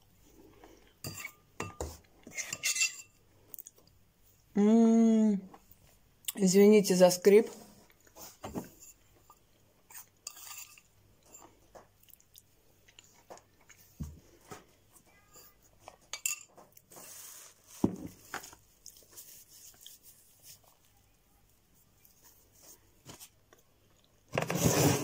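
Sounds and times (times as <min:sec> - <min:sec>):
teaspoon scraping and clinking cup: 0:01.0 - 0:03.1, 0:09.9 - 0:10.9.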